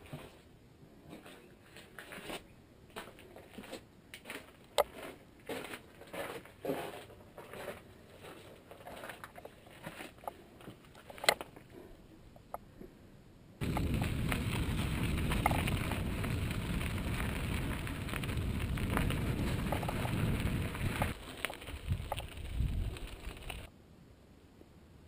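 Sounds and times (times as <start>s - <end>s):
bike tyres crunching on gravel: 13.6s - 23.7s
wind rumble on camera: 13.6s - 23.7s.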